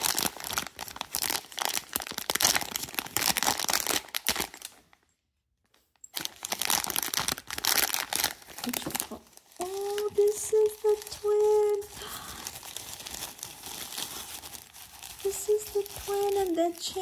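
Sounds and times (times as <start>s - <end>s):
plastic bags crinkling: 0.0s - 5.0s, 6.0s - 17.0s.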